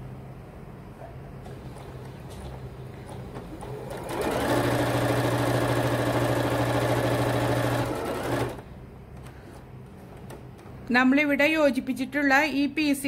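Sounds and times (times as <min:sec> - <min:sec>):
sewing machine stitching: 0:03.4 - 0:08.7.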